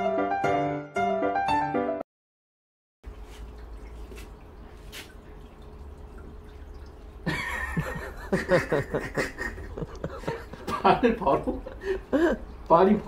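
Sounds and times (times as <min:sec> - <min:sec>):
room hum: 0:03.1 - 0:13.0
person chuckling: 0:07.2 - 0:12.5.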